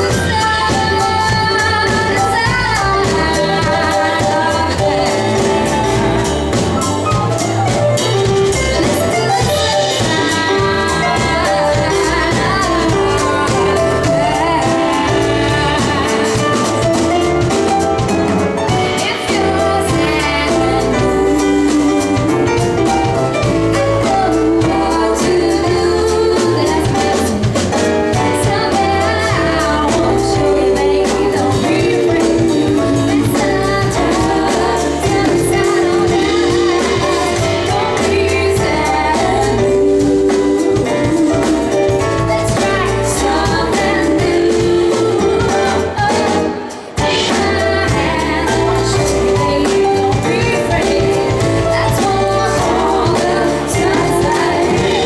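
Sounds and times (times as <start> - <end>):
woman singing: 0.0 - 6.9, 8.2 - 17.8, 18.6 - 55.0
drum kit: 0.0 - 55.0
electric keyboard: 0.0 - 55.0
upright double bass: 0.0 - 55.0.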